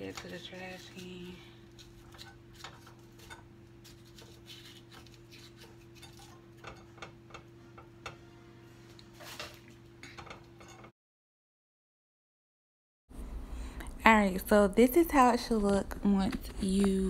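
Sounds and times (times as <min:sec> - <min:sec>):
utensil scraping zucchini: 0:00.0 - 0:06.7
low hum: 0:13.1 - 0:17.0.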